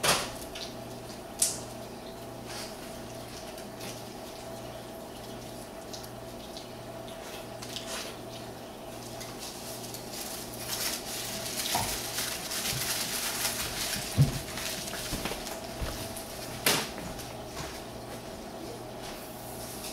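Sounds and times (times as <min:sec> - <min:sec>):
electrical hum: 0:00.0 - 0:19.9
aluminium foil crinkling: 0:02.6 - 0:04.5, 0:07.3 - 0:16.5.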